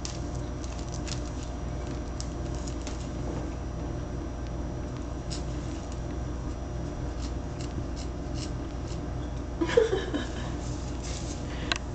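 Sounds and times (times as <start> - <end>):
steady low hum: 0.0 - 11.9.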